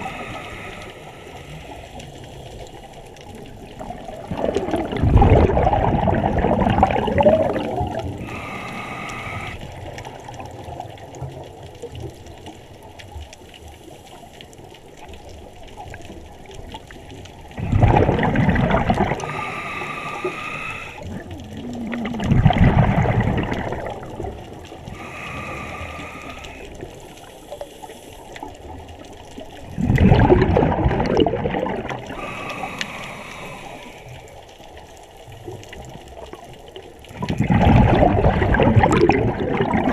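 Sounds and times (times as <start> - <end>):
exhaled bubbles gurgling: 0.0 - 13.6, 14.2 - 39.9
regulator inhalation hiss: 8.2 - 9.7, 19.2 - 21.0, 24.9 - 28.4, 32.1 - 34.2.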